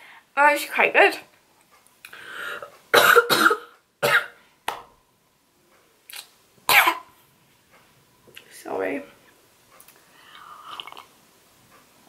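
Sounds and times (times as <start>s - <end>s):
woman coughing: 3.0s - 4.4s, 6.7s - 7.0s.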